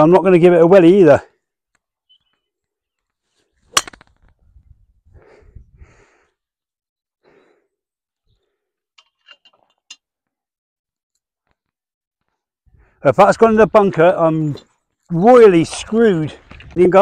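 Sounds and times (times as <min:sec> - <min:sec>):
golf club striking ball: 0:03.7 - 0:04.1
breathy sounds: 0:05.0 - 0:06.6, 0:07.2 - 0:08.9.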